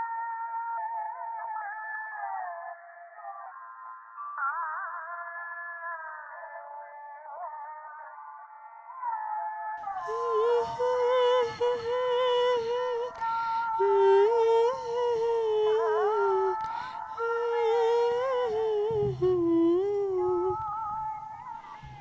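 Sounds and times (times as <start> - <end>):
wordless hummed melody: 10.0 - 22.0.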